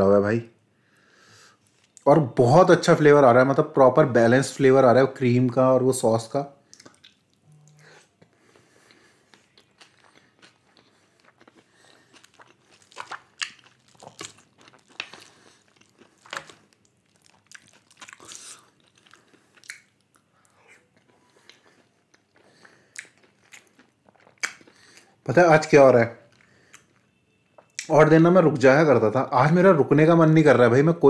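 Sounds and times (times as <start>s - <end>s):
person chewing food: 6.7s - 25.2s, 26.3s - 27.9s.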